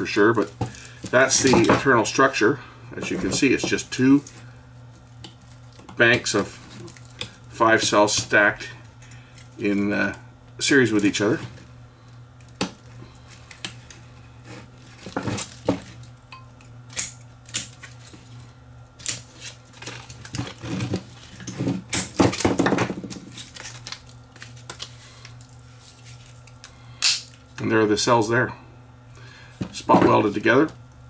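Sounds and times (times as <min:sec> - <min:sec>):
low steady hum: 0:00.0 - 0:31.0
plastic wrap rustling: 0:10.8 - 0:16.2, 0:17.7 - 0:26.7.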